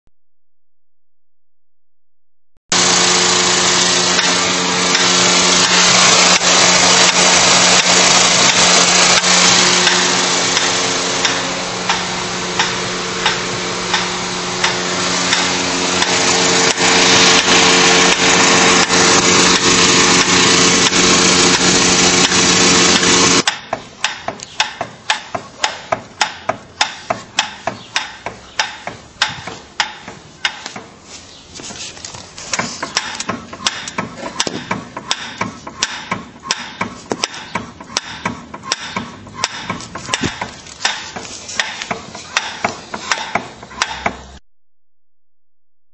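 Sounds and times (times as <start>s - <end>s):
car engine running: 2.7s - 23.5s
steering rack clunking: 31.6s - 44.4s.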